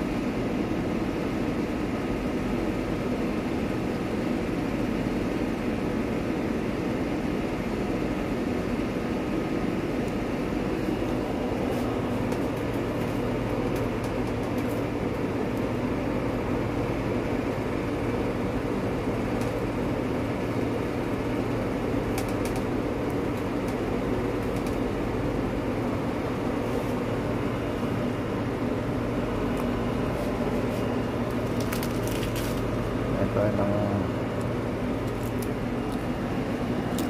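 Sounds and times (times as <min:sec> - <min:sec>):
charring skins crackling: 0:29.5 - 0:33.0, 0:34.4 - 0:36.2.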